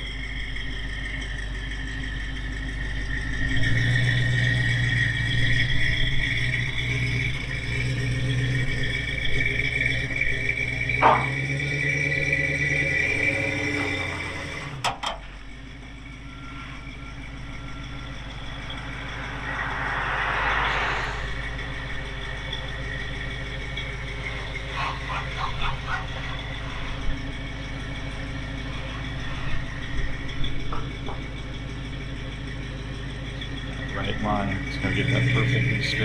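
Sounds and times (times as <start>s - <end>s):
engine idling: 0.0s - 36.0s
broad whoosh: 18.3s - 22.5s.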